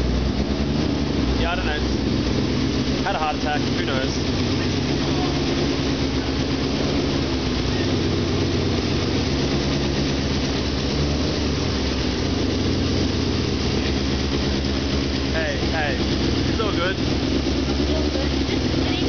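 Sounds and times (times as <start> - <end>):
race car engine idling: 0.0 - 19.0.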